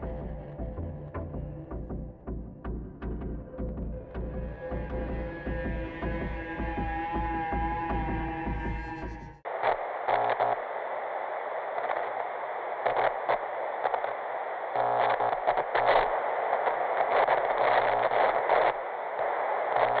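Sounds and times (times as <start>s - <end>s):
crackles and glitchy bursts: 9.5s - 20.0s
television static hiss: 9.5s - 20.0s.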